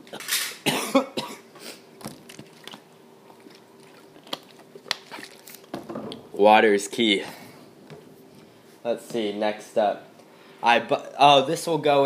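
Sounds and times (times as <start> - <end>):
man coughing: 0.6 - 1.5.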